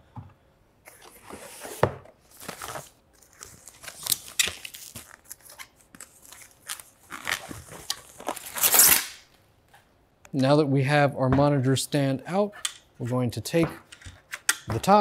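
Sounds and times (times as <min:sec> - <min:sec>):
plastic wrapping crinkling: 0:02.2 - 0:09.3.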